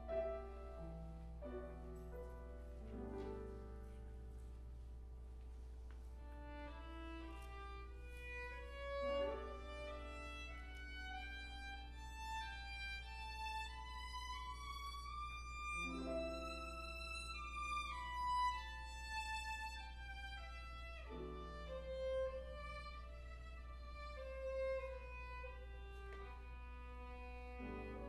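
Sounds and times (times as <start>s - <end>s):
violin playing slow melody: 6.1s - 28.0s.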